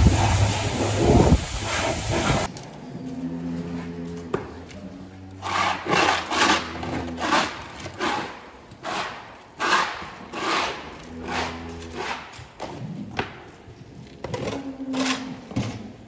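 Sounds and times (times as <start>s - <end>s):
scraper scraping wet concrete: 5.3s - 13.0s.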